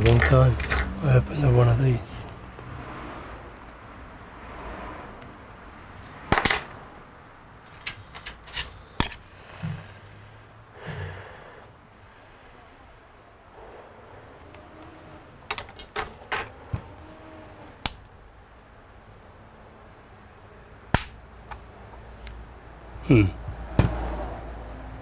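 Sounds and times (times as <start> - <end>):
hand tools clicking and tapping: 0.0 - 1.0, 7.6 - 9.2.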